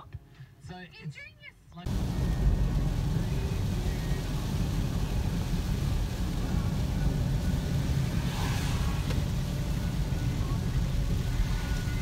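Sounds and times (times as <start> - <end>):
car engine and tyres on wet road: 1.9 - 12.0
brief swish: 8.2 - 9.2.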